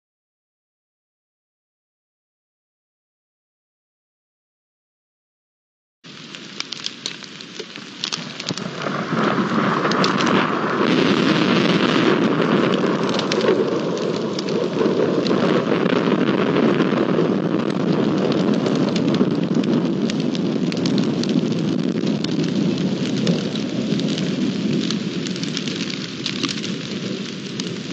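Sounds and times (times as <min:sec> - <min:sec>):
heavy rain downpour: 0:06.1 - 0:27.9.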